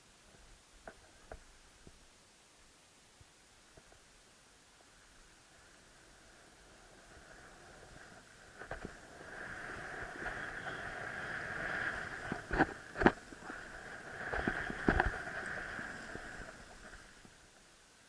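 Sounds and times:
skis hissing through snow: 5.5 - 17.5.

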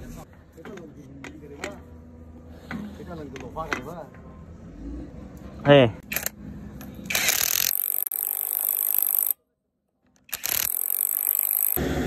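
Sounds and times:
cordless impact wrench driving bolt: 7.1 - 9.4, 10.2 - 11.8.

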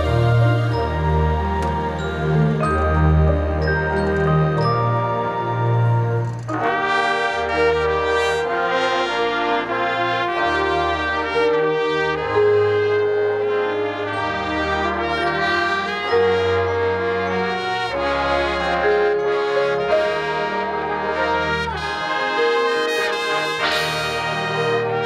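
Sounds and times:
brass band playing chords: 0.0 - 25.0.

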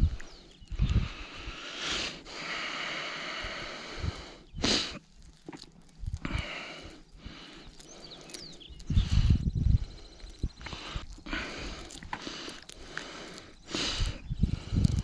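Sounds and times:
person breathing: 0.0 - 5.0, 6.1 - 15.0
sharp sniff: 1.6 - 3.0.

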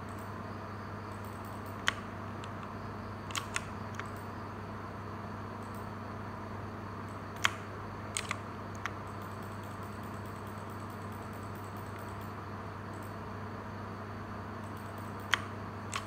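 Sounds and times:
low electrical hum: 0.0 - 16.0
mechanical keyboard key clicks: 3.3 - 4.2, 8.2 - 12.3, 14.7 - 16.0.

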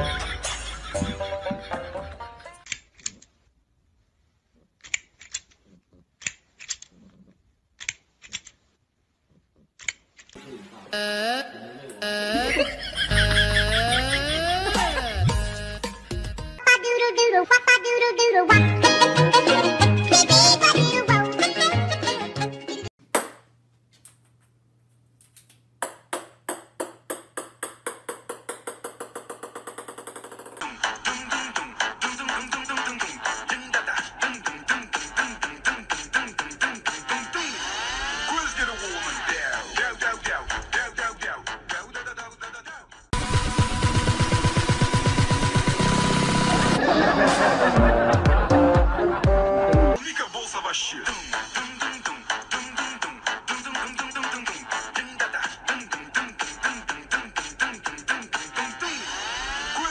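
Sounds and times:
plastic toy clacking: 6.2 - 7.0
ping-pong ball bouncing on wood: 25.8 - 30.1.

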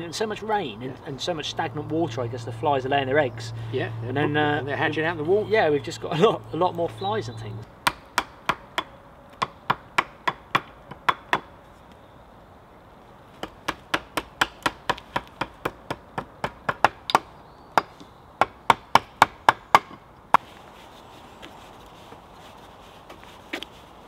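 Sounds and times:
hand tool striking wood: 13.4 - 20.4.

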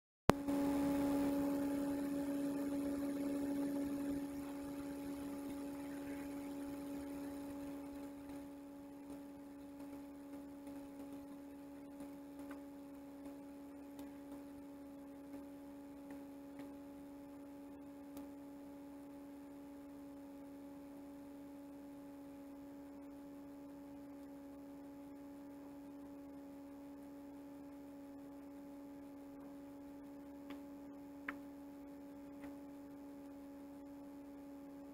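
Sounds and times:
steady hum: 0.3 - 34.9.

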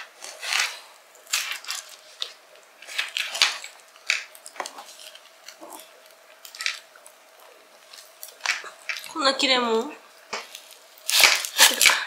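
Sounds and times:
knife scraping onion skin: 0.0 - 6.9, 10.4 - 12.0.

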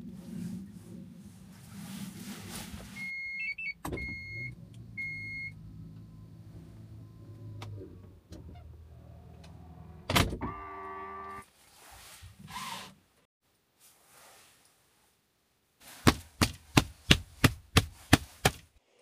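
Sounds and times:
warning beeps: 3.0 - 5.6.

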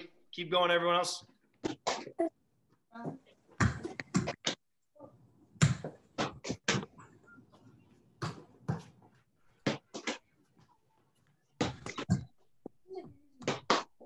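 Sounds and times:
soccer ball thumps: 3.6 - 4.4, 5.6 - 6.8.

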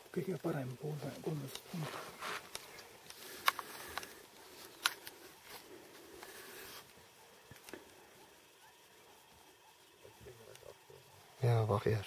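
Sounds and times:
background hiss: 0.0 - 12.0
handling rustles: 0.9 - 7.0.

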